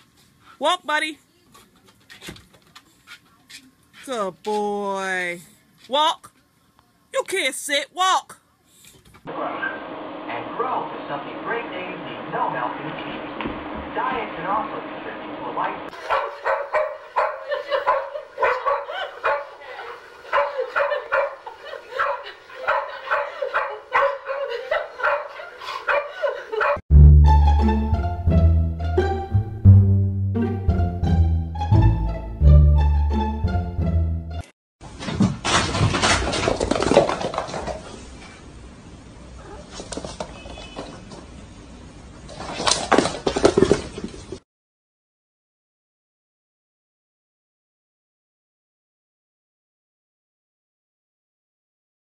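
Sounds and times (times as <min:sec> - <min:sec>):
dog barking in high yips: 0:16.1 - 0:19.6, 0:20.3 - 0:21.4, 0:22.0 - 0:25.3, 0:25.9 - 0:26.8
music with plucked low strings: 0:26.9 - 0:34.4.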